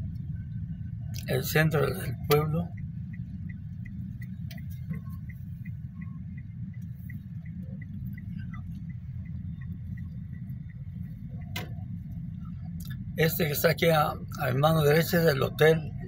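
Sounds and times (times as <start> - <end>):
car engine and road rumble: 0.0 - 16.0
turn signal ticking: 0.0 - 16.0.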